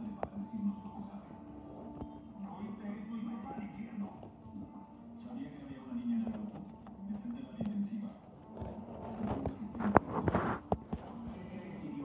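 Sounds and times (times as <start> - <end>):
rustling on leather sofa: 8.6 - 11.2.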